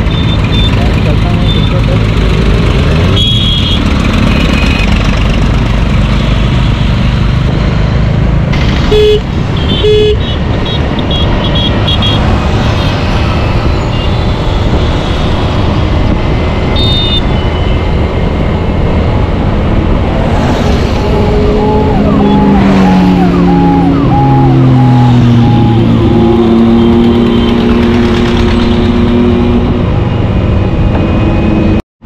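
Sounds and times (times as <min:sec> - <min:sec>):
motorcycle engine: 0:00.0 - 0:31.8
short horn beeps: 0:08.9 - 0:10.2
wind rushing over microphone: 0:10.4 - 0:31.8.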